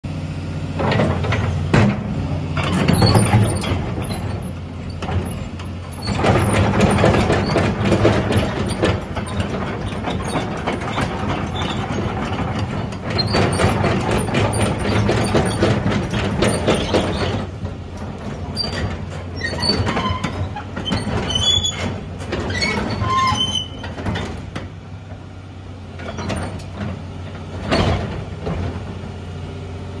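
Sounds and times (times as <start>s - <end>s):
excavator diesel engine: 0.0s - 30.0s
steel tracks clanking: 0.8s - 25.3s
high track squeaks: 18.5s - 24.0s.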